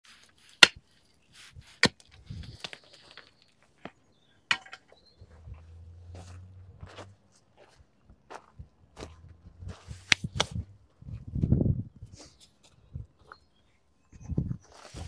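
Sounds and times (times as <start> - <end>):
pickaxe striking rubble: 4.5 - 4.9
debris knocking and scraping: 4.5 - 5.0.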